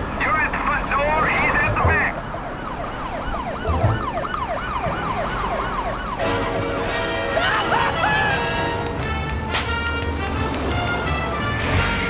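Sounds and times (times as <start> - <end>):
police siren yelping: 0.9 - 8.6.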